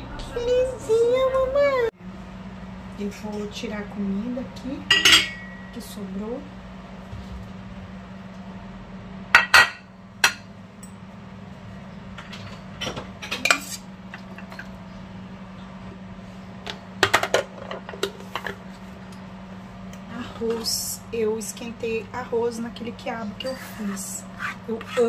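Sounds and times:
steady low hum: 0.0s - 25.0s
glass dish clinking: 4.9s - 5.7s
pot lid and utensils clattering: 4.9s - 5.7s
metal spoon scraping a pot: 23.5s - 25.0s.

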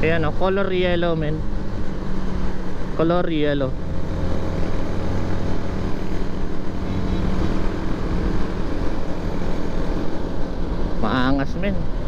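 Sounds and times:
motorcycle engine droning: 0.0s - 12.0s
tyres on wet road: 0.0s - 12.0s
wind rush: 3.7s - 12.0s.

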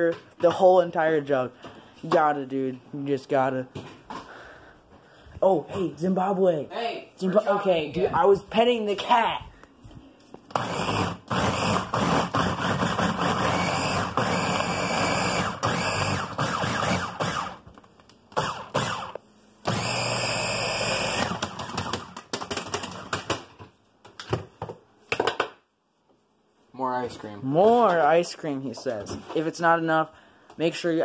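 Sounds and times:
blender running and pulsing: 10.5s - 17.6s, 18.4s - 22.1s.

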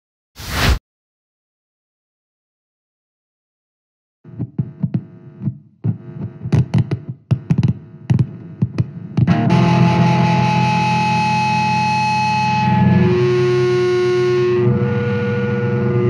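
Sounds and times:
distorted electric guitar stabs: 5.9s - 16.0s.

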